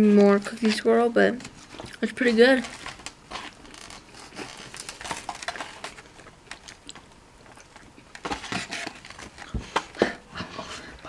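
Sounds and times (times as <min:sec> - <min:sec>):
small clicks and crackles: 0:00.5 - 0:10.0
waffle chewing: 0:03.0 - 0:11.0.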